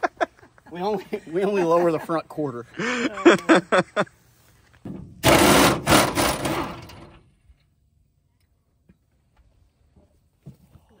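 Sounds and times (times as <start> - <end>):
air impact wrench hammering: 5.1 - 6.9.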